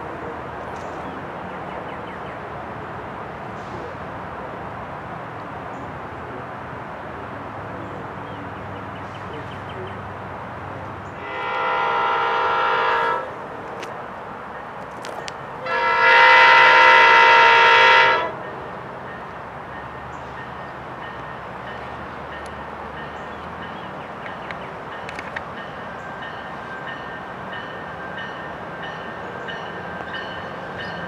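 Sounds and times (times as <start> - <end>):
locomotive air horn blasts: 11.2 - 13.4, 15.6 - 18.4.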